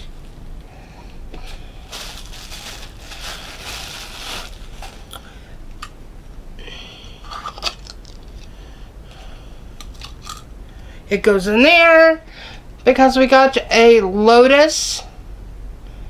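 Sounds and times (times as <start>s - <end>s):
packaging crinkling and rustling: 1.5s - 5.2s.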